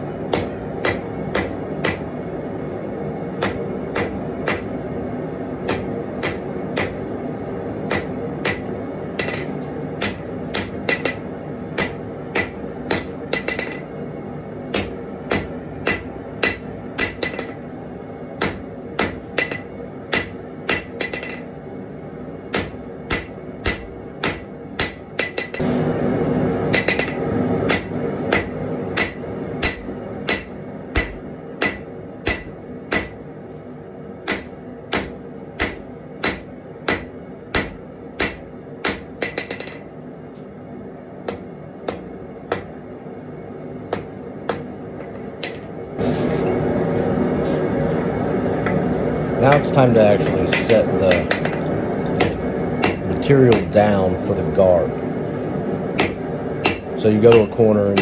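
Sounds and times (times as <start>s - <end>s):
hammer striking steel on anvil: 0.3s - 2.1s, 3.4s - 4.8s, 5.6s - 7.0s, 7.8s - 14.0s, 14.7s - 17.7s, 18.4s - 21.5s, 22.5s - 25.7s, 26.7s - 33.2s, 34.2s - 39.9s, 41.2s - 42.7s, 49.5s - 53.8s, 56.0s - 58.0s.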